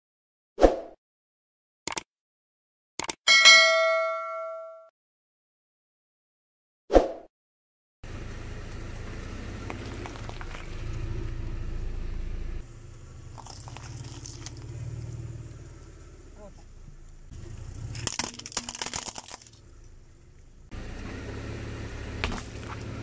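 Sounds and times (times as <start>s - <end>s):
car engine humming: 8.0s - 23.0s
tyre crushing brittle items: 17.8s - 19.6s.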